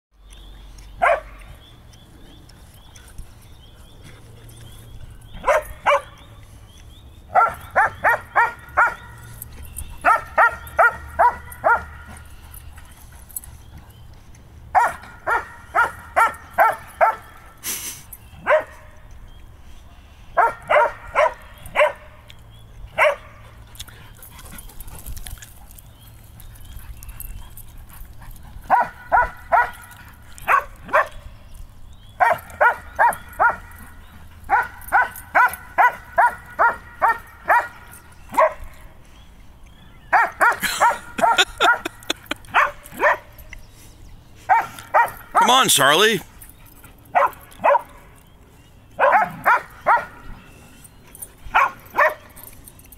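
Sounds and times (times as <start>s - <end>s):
dog barking: 1.0s - 1.3s, 5.4s - 6.2s, 7.3s - 9.1s, 10.0s - 11.9s, 14.8s - 17.3s, 18.4s - 18.8s, 20.4s - 22.1s, 23.0s - 23.4s, 28.7s - 29.8s, 30.4s - 31.2s, 32.2s - 33.7s, 34.5s - 37.8s, 38.4s - 38.6s, 40.1s - 41.9s, 42.5s - 43.3s, 44.5s - 45.4s, 47.1s - 47.9s, 49.0s - 50.2s, 51.6s - 52.2s.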